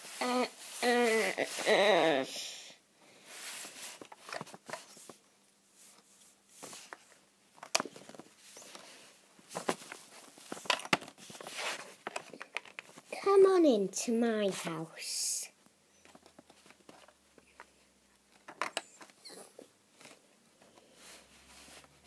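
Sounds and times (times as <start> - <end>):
rustling and scraping: 3.2 - 13.4, 15.9 - 22.0.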